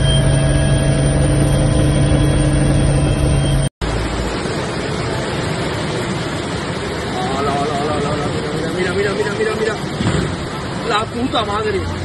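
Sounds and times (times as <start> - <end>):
aircraft engine drone: 0.0 - 10.9
floodwater rushing down street: 3.8 - 12.0.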